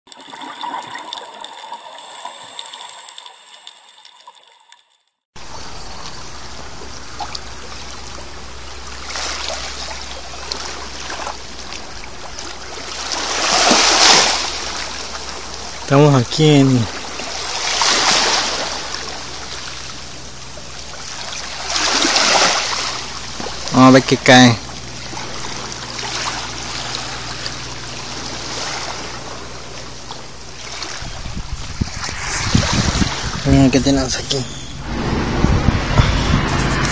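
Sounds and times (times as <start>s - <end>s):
small waves lapping on rocks: 5.4s - 34.4s
low rumble: 24.6s - 36.9s.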